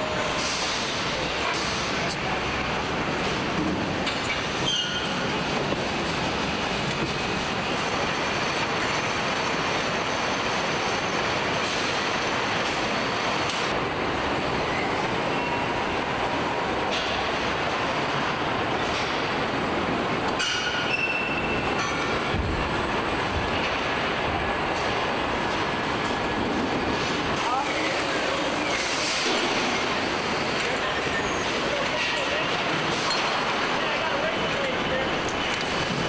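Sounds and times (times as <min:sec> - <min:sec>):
factory machinery din: 0:00.0 - 0:36.0
high metallic squeals: 0:04.6 - 0:05.2.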